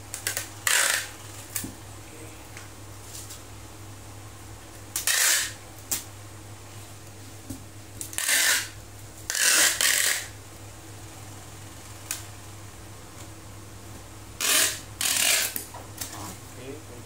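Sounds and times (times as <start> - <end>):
packing tape pulled off dispenser: 0.1 - 1.6, 4.9 - 6.1, 8.0 - 10.3, 14.4 - 16.1.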